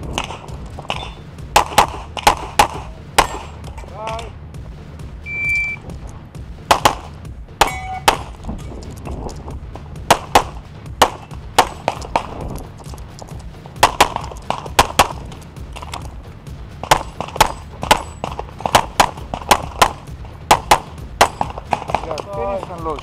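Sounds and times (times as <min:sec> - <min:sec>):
pistol shots: 0:00.0 - 0:04.2, 0:06.6 - 0:09.1, 0:10.0 - 0:16.1, 0:16.8 - 0:22.8
steel target ringing: 0:00.9 - 0:01.3, 0:07.6 - 0:08.2.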